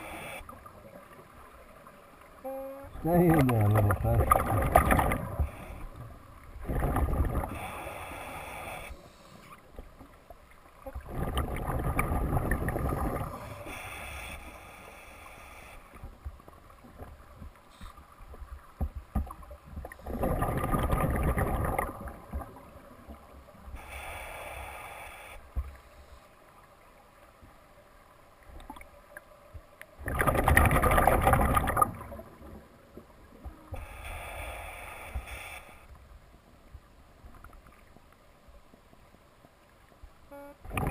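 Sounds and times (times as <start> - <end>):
regulator inhalation hiss: 0.0 - 0.5, 7.5 - 9.6, 13.4 - 16.0, 23.7 - 26.3, 33.7 - 35.9
exhaled bubbles rushing: 3.3 - 5.6, 11.0 - 13.5, 20.0 - 22.6, 30.0 - 32.5.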